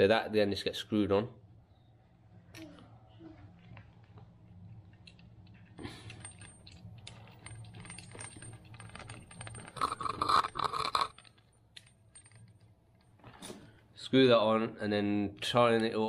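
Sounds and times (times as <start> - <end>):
metal fittings clinking: 4.7 - 13.8.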